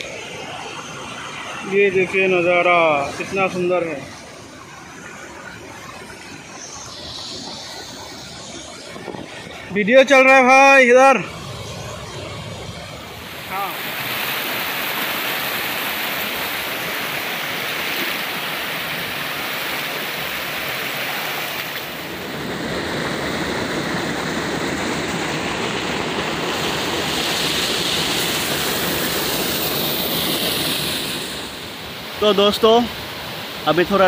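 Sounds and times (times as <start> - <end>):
water rushing over boulders: 13.2 - 34.0.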